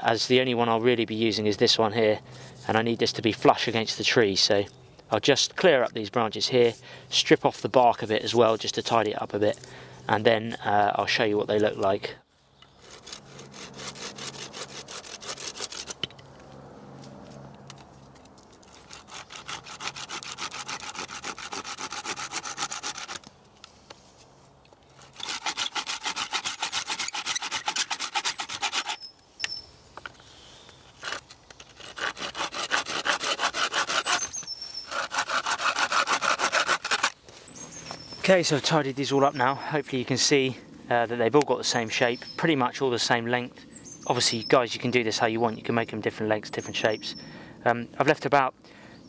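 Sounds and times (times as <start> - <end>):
knife scraping bark off stick: 12.6 - 38.8.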